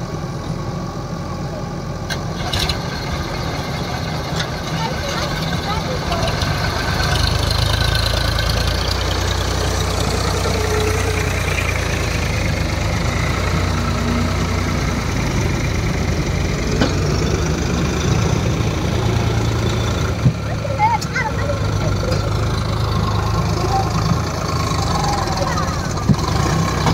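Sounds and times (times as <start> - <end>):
backhoe loader engine running: 0.0 - 26.9
tractor diesel engine running: 0.0 - 26.9.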